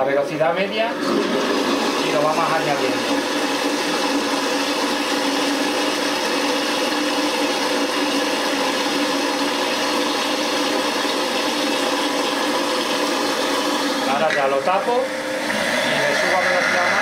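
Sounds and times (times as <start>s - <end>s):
food processor blades whirring: 0.7s - 17.0s.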